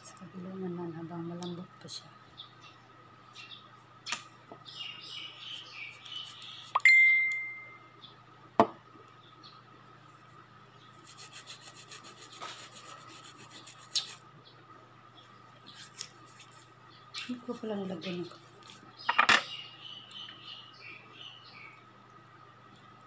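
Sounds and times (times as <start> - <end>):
metal nail tool scraping: 13.2 - 14.2.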